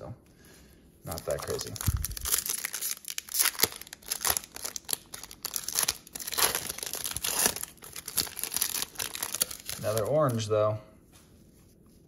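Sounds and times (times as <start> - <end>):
plastic wrapper crinkling and tearing: 1.1 - 10.5.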